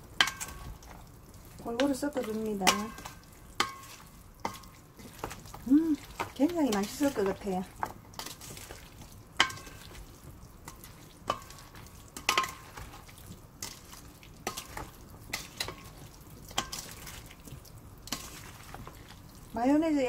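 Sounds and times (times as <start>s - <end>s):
wet stirring of food: 0.0s - 20.0s.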